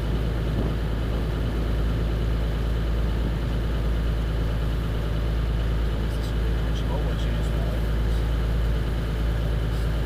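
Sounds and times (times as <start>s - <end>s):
wind rumble on microphone: 0.0s - 2.3s
boat engine running: 0.0s - 10.0s.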